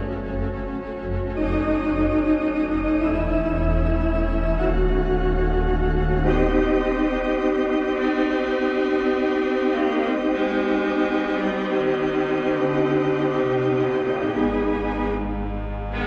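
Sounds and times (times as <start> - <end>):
organ playing slow chords: 0.0 - 16.0.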